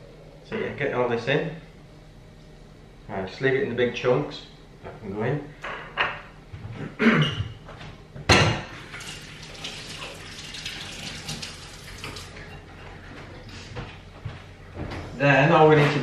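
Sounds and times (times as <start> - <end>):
hands rinsing under water: 8.9 - 12.5
tap water running into steel sink: 8.9 - 12.6.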